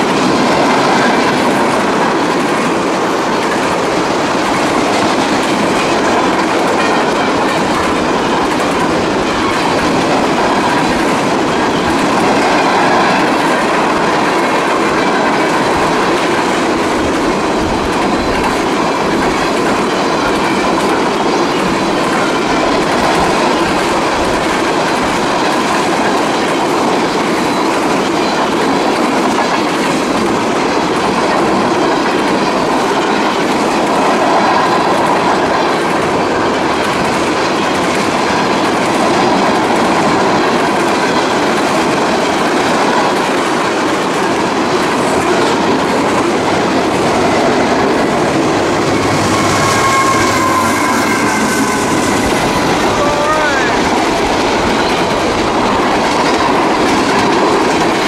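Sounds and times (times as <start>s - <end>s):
train wheels clattering on rails: 0.0s - 58.0s
faint high ring: 48.9s - 52.8s.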